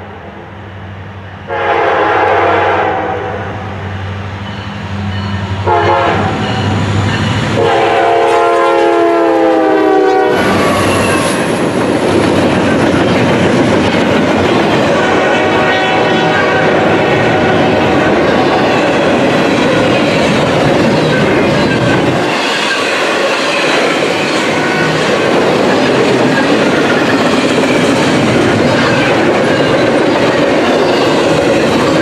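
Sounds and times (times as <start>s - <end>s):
locomotive air horn: 1.5s - 3.8s, 5.6s - 6.5s, 7.6s - 10.8s, 15.0s - 18.0s
train wheels clattering on rails: 4.4s - 32.0s.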